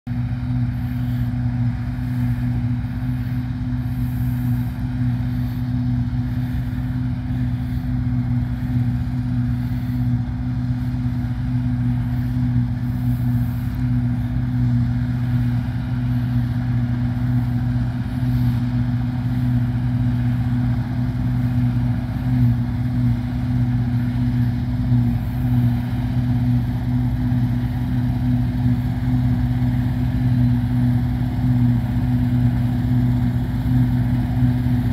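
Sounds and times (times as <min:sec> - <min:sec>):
combine harvester engine hum: 0:00.0 - 0:34.9.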